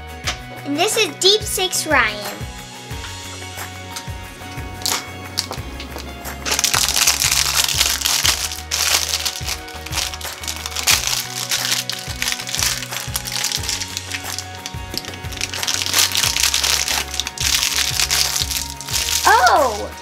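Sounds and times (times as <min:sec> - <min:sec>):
background music with low notes: 0:00.0 - 0:20.0
foil wrapper crinkling and tearing: 0:06.4 - 0:20.0.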